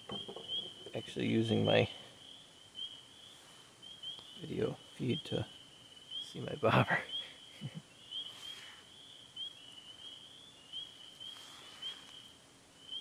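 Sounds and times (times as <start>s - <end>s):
frogs calling: 0.0s - 13.0s
faint rustles: 3.0s - 5.1s, 7.2s - 9.5s, 10.9s - 12.5s.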